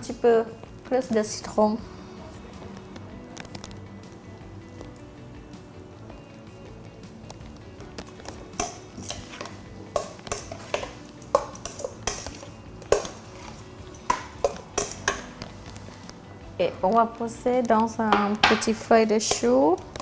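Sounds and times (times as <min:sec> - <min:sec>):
metal spoon scraping a steel bowl: 0:08.6 - 0:15.2, 0:19.2 - 0:19.7.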